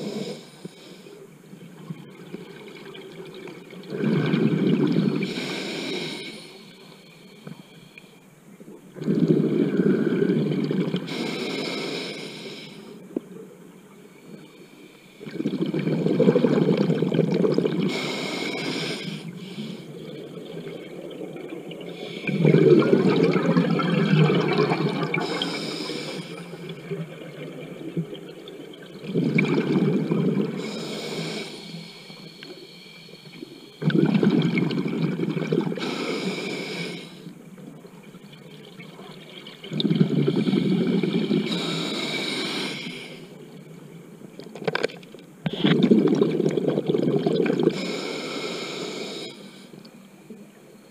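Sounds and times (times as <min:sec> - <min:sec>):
regulator bubbling exhalations: 0:03.8 - 0:06.2, 0:15.2 - 0:19.2, 0:20.0 - 0:28.0, 0:29.0 - 0:31.6, 0:33.8 - 0:36.8, 0:39.6 - 0:42.8, 0:45.4 - 0:48.0.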